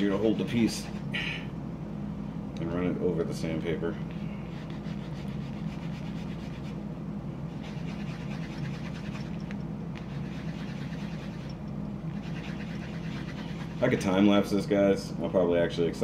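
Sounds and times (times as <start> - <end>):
low hum: 0.0 - 16.0
plastic scratching on sanding block: 4.5 - 6.8, 7.5 - 9.3, 10.0 - 11.6, 12.2 - 14.2.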